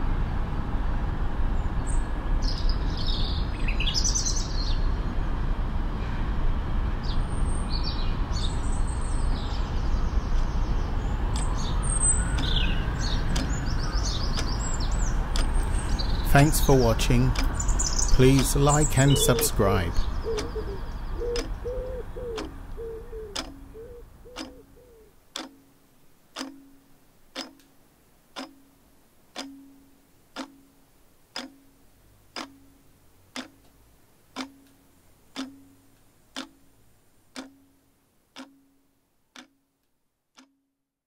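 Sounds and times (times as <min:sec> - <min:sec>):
clock ticking: 0:11.2 - 0:39.7, 0:40.3 - 0:40.6
bird's wavering call: 0:18.8 - 0:25.1.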